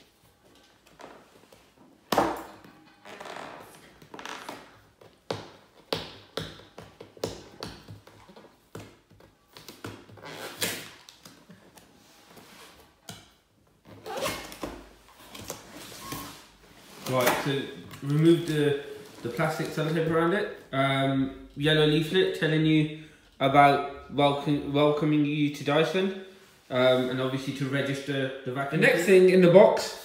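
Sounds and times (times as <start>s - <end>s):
sticky tape tearing off cardboard: 9.7s - 11.4s.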